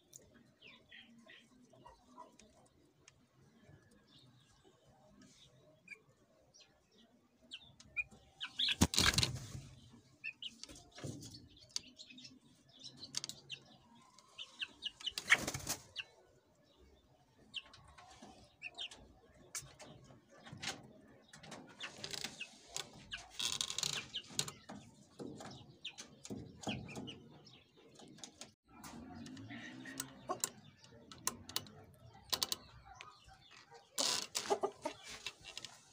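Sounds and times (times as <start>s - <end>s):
chicks peeping faintly: 0.0s - 35.9s
chicks scratching in bedding: 8.4s - 11.6s, 14.0s - 16.1s, 17.7s - 27.5s, 32.6s - 35.9s
wings flapping: 8.6s - 9.6s, 15.2s - 16.0s.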